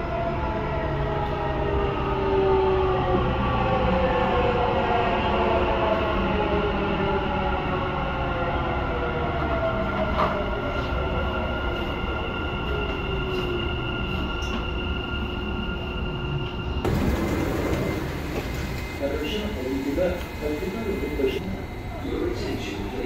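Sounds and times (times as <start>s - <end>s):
train wheels rumbling on track: 16.3s - 23.0s
electric motor whine: 16.9s - 23.0s.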